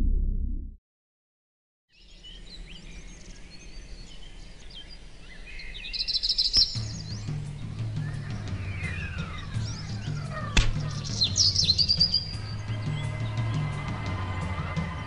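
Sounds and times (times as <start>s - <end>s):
low sound: 0.0s - 0.8s
songbirds chirping: 1.9s - 15.0s
bird trill: 2.0s - 15.0s
low music notes: 6.8s - 15.0s.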